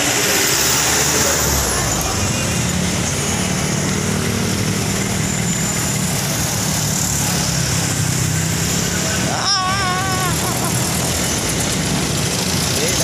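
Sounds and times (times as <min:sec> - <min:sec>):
bus engine idling: 0:00.0 - 0:13.0
road traffic noise: 0:00.0 - 0:13.0.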